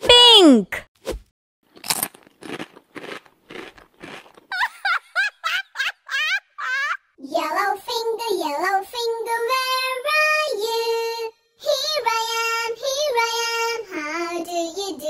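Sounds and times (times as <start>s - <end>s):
child singing: 7.2s - 15.0s.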